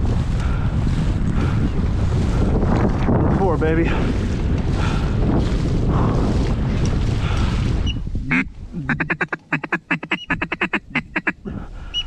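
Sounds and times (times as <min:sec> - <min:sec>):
wind buffeting microphone: 0:00.0 - 0:12.0
ducks quacking: 0:08.2 - 0:12.0.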